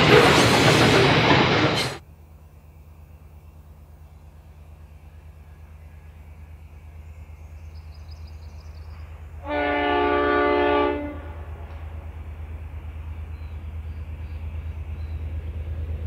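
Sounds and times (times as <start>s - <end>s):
locomotive horn: 9.4s - 11.8s
diesel engine rumble: 11.1s - 16.0s.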